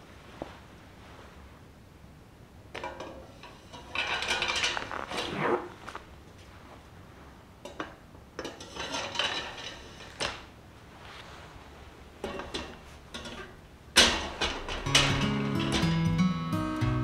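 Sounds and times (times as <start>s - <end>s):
metal drawers clinking and scraping: 2.8s - 5.4s, 8.4s - 10.4s, 12.2s - 16.4s.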